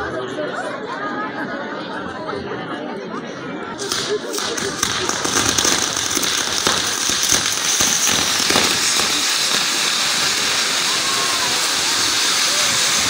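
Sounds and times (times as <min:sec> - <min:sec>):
fireworks crackling pops: 0:03.8 - 0:13.0
fireworks fizzing hiss: 0:03.8 - 0:13.0.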